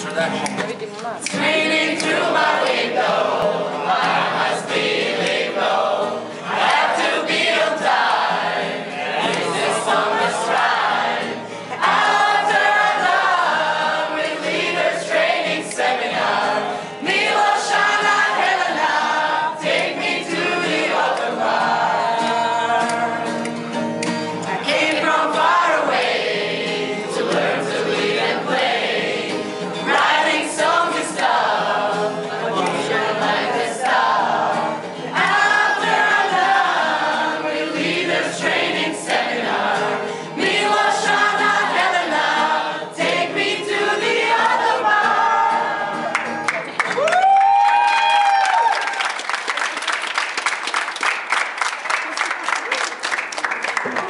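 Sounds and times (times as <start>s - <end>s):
group singing in chorus: 1.2s - 23.8s, 24.4s - 46.3s.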